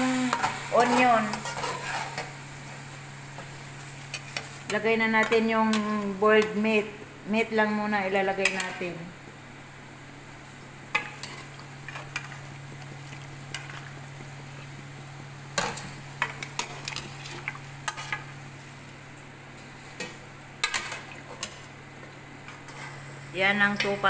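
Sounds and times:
oil sizzling: 0:00.0 - 0:24.0
steady low hum: 0:00.0 - 0:24.0
metal spoon scraping a pot: 0:00.8 - 0:02.3.

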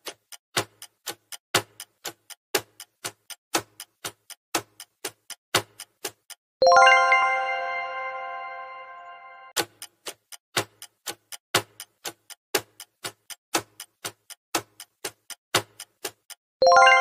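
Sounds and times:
clock-like ticking: 0:00.0 - 0:06.9, 0:09.5 - 0:17.0
chime ringing: 0:06.6 - 0:09.5, 0:16.6 - 0:17.0.

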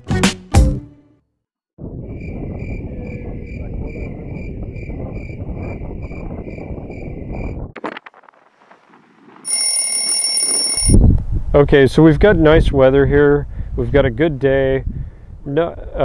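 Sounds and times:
wind on microphone: 0:01.8 - 0:07.8, 0:10.8 - 0:16.0
faint high beeps: 0:09.5 - 0:11.0
shrill electronic alarm ringing: 0:09.5 - 0:11.0.

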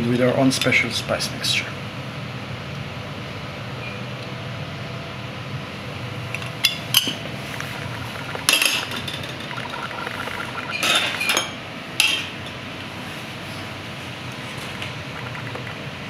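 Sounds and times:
steady low hum: 0:05.1 - 0:16.0.

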